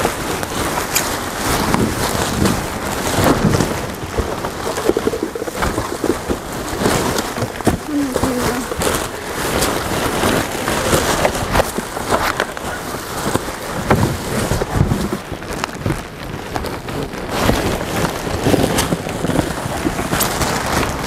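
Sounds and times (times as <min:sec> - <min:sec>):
rummaging through trash: 0:00.0 - 0:21.0
knocks of things moved: 0:03.2 - 0:12.4.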